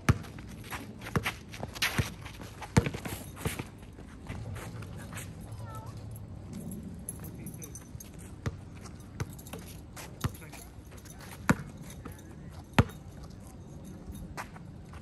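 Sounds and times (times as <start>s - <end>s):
basketball bouncing on court: 0.0s - 0.5s, 1.1s - 3.1s, 8.4s - 10.5s, 11.1s - 12.2s, 12.8s - 13.1s.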